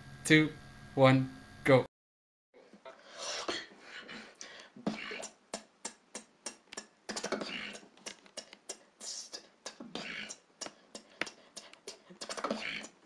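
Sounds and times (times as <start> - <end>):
person beatboxing: 4.8 - 13.0.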